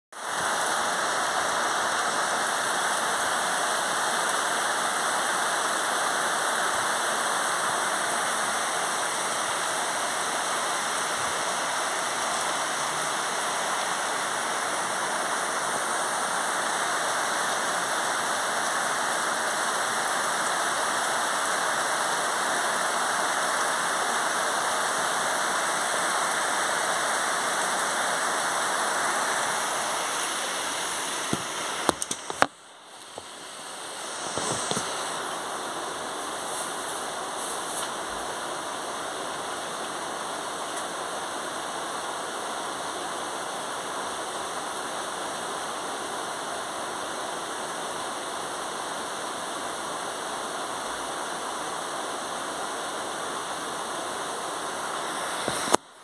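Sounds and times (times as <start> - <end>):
heavy rain falling: 0.1 - 56.0.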